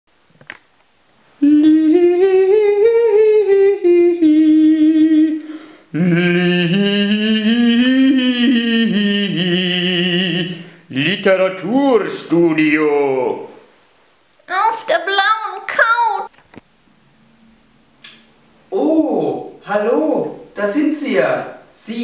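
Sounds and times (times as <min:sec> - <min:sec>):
person humming a tune: 0:01.4 - 0:10.6.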